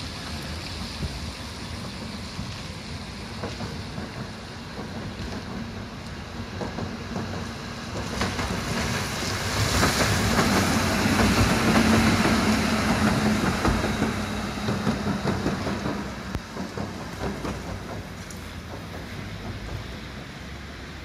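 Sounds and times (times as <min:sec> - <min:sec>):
tram motor hum: 0:00.0 - 0:21.0
tram wheels clicking over rails: 0:00.0 - 0:21.0.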